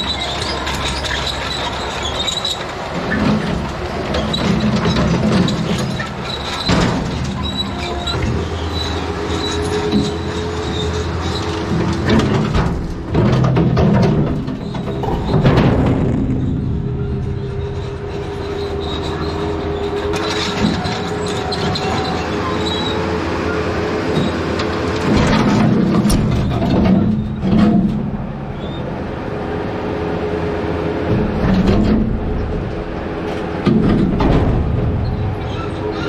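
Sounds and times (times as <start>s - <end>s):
loader engine hydraulic drone: 0.0s - 36.0s
concrete slabs crashing into metal bed: 12.1s - 16.6s.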